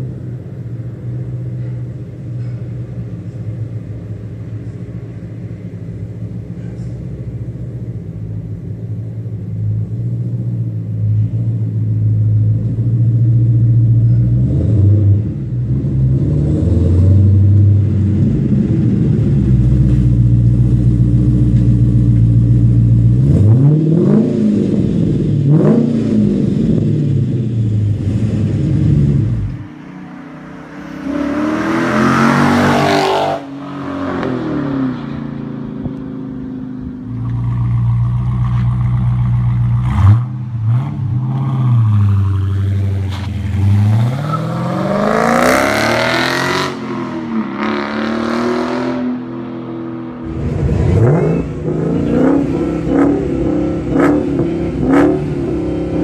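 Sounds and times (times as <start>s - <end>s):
car engine rumbling and revving: 0.0s - 56.0s
loud rasping car engine revving: 22.6s - 36.4s, 37.1s - 56.0s.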